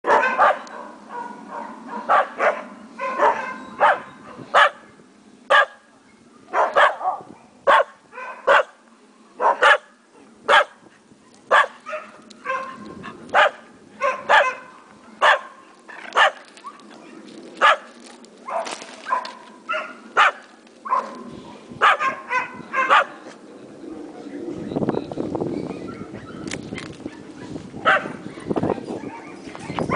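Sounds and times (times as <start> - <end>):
dog barking: 0.0 - 4.8, 5.5 - 5.8, 6.5 - 8.8, 9.4 - 9.9, 10.5 - 10.8, 11.5 - 16.4, 18.5 - 21.2, 21.8 - 23.2, 27.8 - 29.4.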